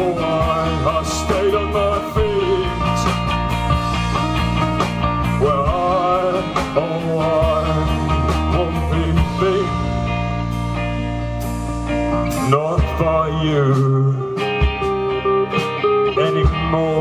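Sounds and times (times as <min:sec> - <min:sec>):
live rock band playing: 0:00.0 - 0:17.0
wavering lead melody: 0:14.2 - 0:17.0.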